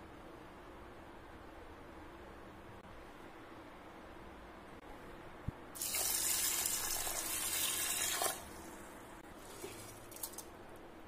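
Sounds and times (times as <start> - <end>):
tap water running into pot: 5.8 - 8.5.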